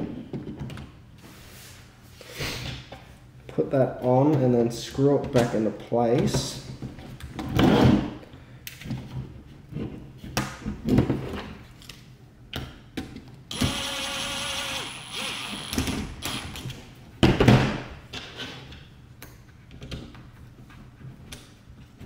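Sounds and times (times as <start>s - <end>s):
cordless screwdriver driving screw: 13.5s - 16.7s.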